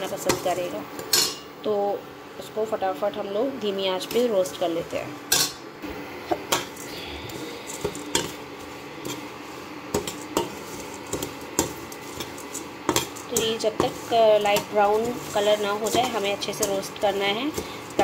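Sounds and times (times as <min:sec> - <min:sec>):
steel spatula scraping a pan: 0:06.6 - 0:18.0.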